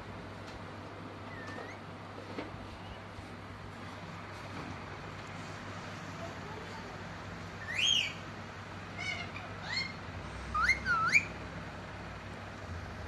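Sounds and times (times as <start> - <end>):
parakeet whistles gliding in pitch: 7.6 - 8.2, 9.0 - 11.4.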